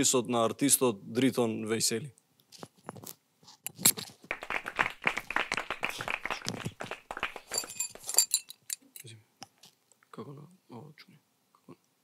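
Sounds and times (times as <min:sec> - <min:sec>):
bright ringing clinks: 0:07.5 - 0:08.8.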